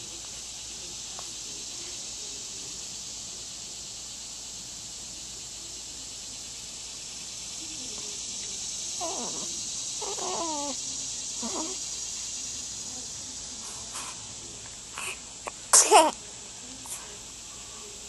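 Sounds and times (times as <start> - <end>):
steady hiss: 0.0 - 18.0
newborn baby squeaking: 10.0 - 10.8, 15.8 - 16.1.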